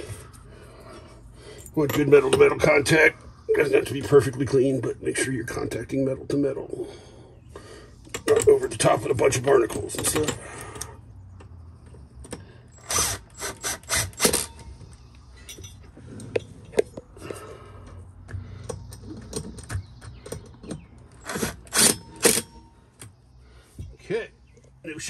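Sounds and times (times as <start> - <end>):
cordless impact driver bursts: 12.7 - 14.7, 21.2 - 22.5.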